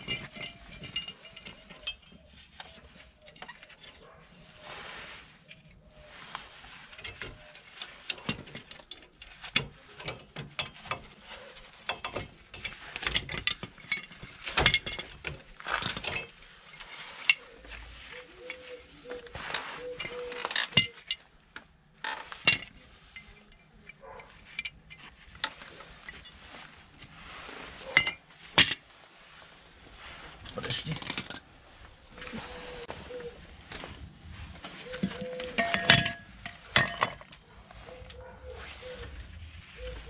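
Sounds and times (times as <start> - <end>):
metal brake parts clinking: 0.0 - 4.2, 7.0 - 17.8, 34.9 - 37.6.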